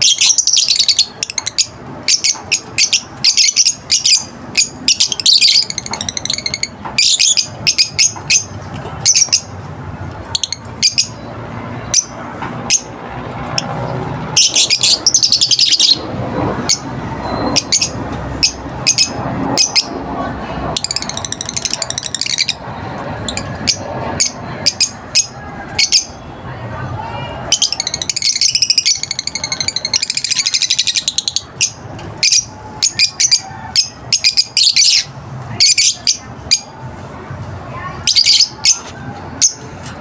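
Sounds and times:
lovebirds chirping: 0:00.0 - 0:20.0, 0:27.4 - 0:36.7.

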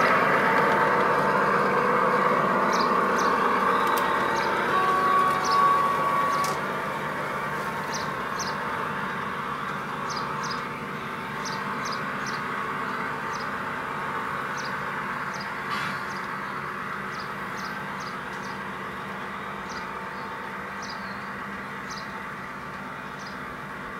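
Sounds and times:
model train humming: 0:00.0 - 0:23.9
small birds chirping: 0:02.6 - 0:06.6, 0:07.7 - 0:08.8, 0:09.6 - 0:13.6, 0:14.5 - 0:18.8, 0:19.6 - 0:22.2, 0:23.1 - 0:23.5
brief steady tone: 0:03.6 - 0:06.6.

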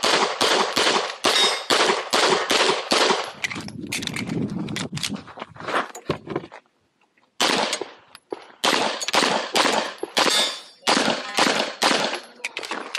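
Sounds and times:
pistol shots: 0:00.0 - 0:03.4, 0:07.4 - 0:08.0, 0:08.6 - 0:12.8.

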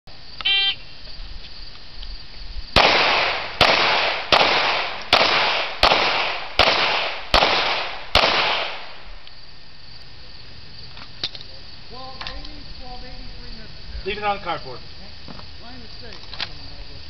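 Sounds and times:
pistol shots with echo: 0:02.8 - 0:09.1.

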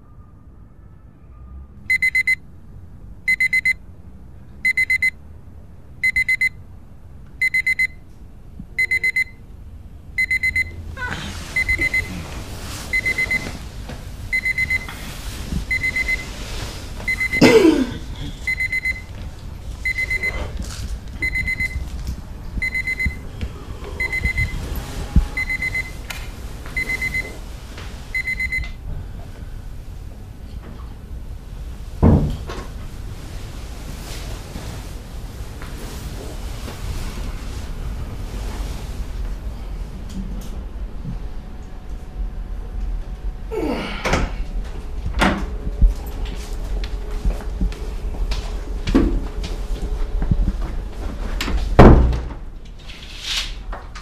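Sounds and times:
alarm clock beeping: 0:01.9 - 0:02.4, 0:03.3 - 0:03.8, 0:04.6 - 0:05.2, 0:06.0 - 0:06.6, 0:07.4 - 0:08.0, 0:08.8 - 0:09.4, 0:10.2 - 0:10.8, 0:11.6 - 0:12.1, 0:12.9 - 0:13.5, 0:14.3 - 0:14.9, 0:15.7 - 0:16.3, 0:17.1 - 0:17.4, 0:18.5 - 0:19.1, 0:19.8 - 0:20.4, 0:21.2 - 0:21.8, 0:22.6 - 0:23.2, 0:24.0 - 0:24.6, 0:25.4 - 0:26.0, 0:26.8 - 0:27.3, 0:28.1 - 0:28.7.

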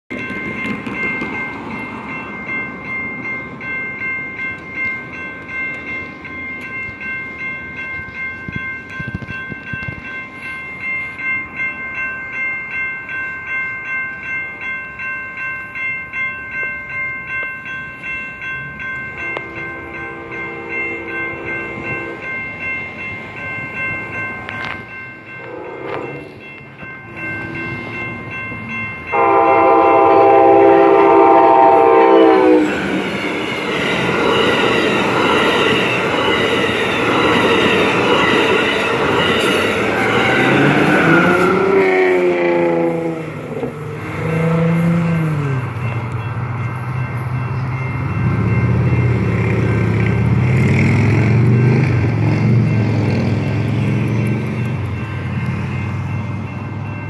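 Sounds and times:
railroad crossing bell ringing: 0:00.1 - 0:57.0
train horn blasts: 0:19.4 - 0:22.3, 0:25.4 - 0:26.3, 0:29.1 - 0:32.9, 0:44.2 - 0:45.5.

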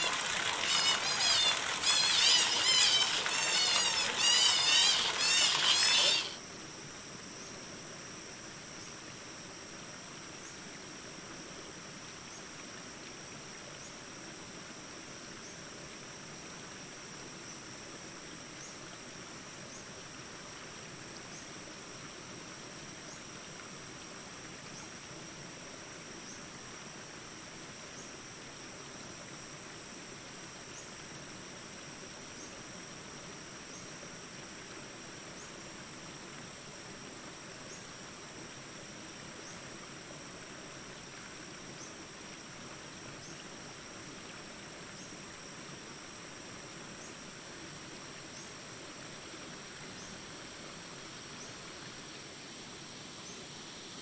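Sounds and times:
short insect chirps: 0:00.0 - 0:06.4
insect chorus trilling drone: 0:00.0 - 0:54.0.

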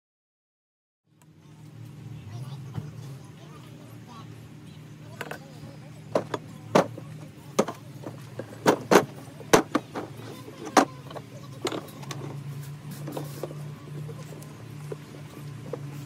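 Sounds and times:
steady low hum: 0:01.1 - 0:16.0
metal wheel rims and tools knocking: 0:06.1 - 0:12.5.

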